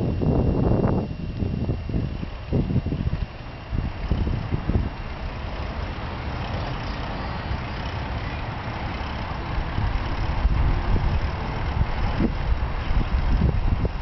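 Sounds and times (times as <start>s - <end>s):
wind buffeting microphone: 0.0s - 14.0s
bicycle tyres rolling on asphalt: 1.9s - 14.0s.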